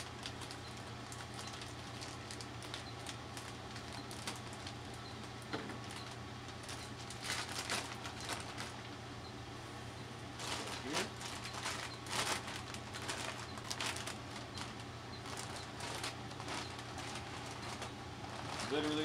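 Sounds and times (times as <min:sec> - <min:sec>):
plastic bag crinkling: 0:00.0 - 0:08.8, 0:10.4 - 0:19.0
fan hum: 0:00.0 - 0:19.0.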